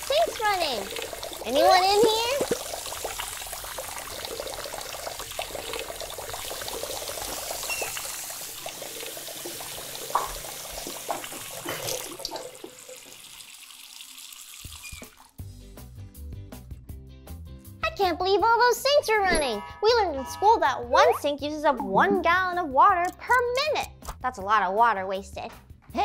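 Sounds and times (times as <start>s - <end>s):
water running into sinks: 0.0s - 15.4s.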